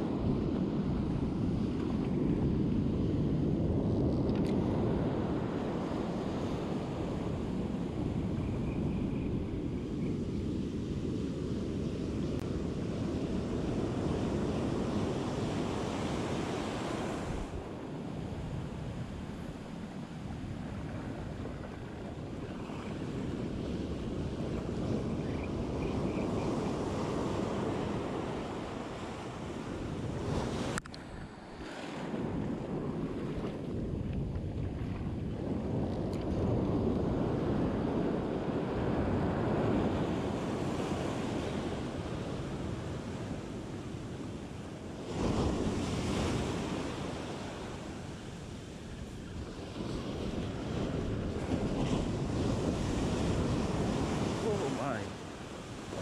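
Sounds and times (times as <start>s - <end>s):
wind buffeting microphone: 0.0s - 56.0s
surf breaking on beach: 12.0s - 56.0s.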